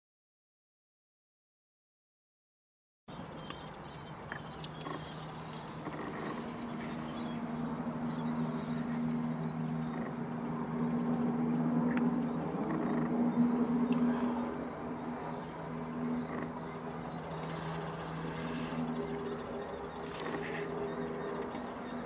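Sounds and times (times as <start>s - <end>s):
low hum: 3.2s - 22.0s
faint high chirps and clicks: 3.4s - 7.0s, 11.8s - 13.1s, 15.9s - 22.0s.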